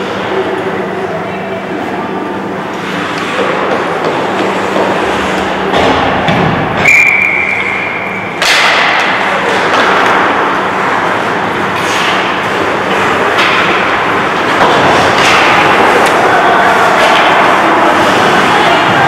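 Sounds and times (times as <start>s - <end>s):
skates scraping ice: 2.7s - 6.1s, 8.7s - 19.0s
sticks hitting puck: 2.8s - 19.0s.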